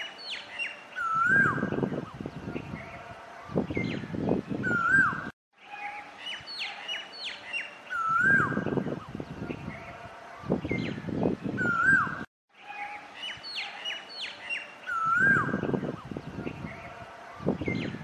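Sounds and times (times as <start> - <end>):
bird whistled calls: 4.6 - 8.7, 11.6 - 15.8.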